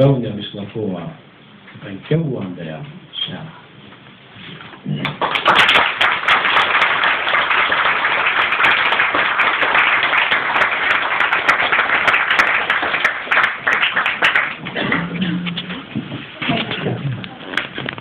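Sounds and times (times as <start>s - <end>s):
crowd applauding: 5.0s - 15.3s.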